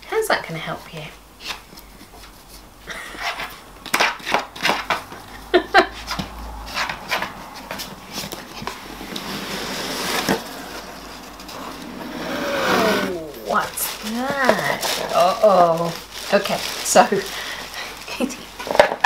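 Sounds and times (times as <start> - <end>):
dog scratching cardboard box: 2.2 - 5.3, 6.0 - 17.3
cardboard box lid scraping open: 8.2 - 15.0.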